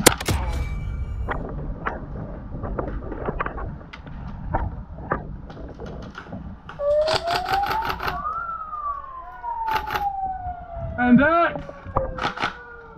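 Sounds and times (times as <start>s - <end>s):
siren winding up and down: 6.7s - 12.9s.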